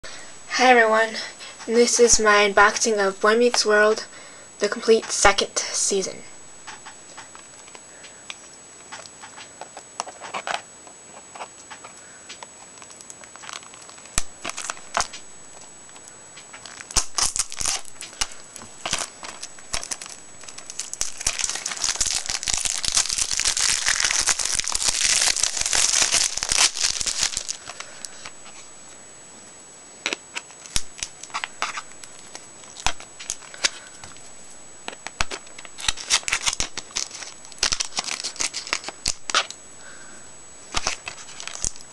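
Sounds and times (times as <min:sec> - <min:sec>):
plastic shrink-wrap crinkling: 0:12.8 - 0:15.3, 0:15.9 - 0:28.7, 0:30.1 - 0:39.6, 0:40.7 - 0:41.9.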